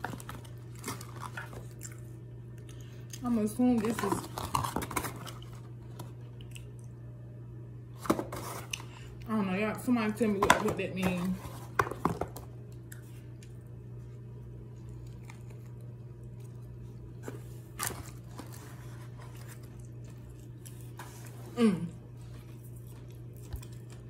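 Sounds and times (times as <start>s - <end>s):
person chewing crunchy food: 0.0s - 3.2s, 3.9s - 7.0s, 12.7s - 21.3s, 22.1s - 24.0s
steady low hum: 0.0s - 24.0s
person humming mm: 21.5s - 22.0s.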